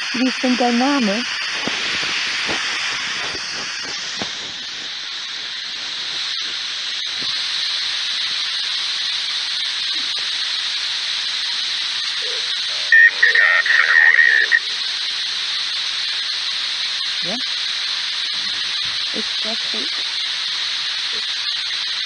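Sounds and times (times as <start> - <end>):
radio static hiss: 0.0 - 22.0.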